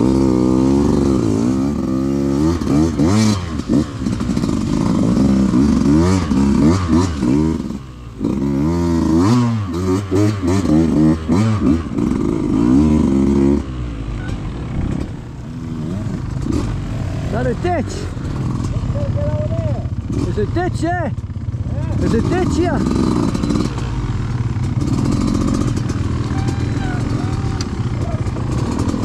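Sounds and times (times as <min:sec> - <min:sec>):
motorcycle engine revving: 0:00.0 - 0:29.0
knocks and clatter: 0:14.2 - 0:15.3.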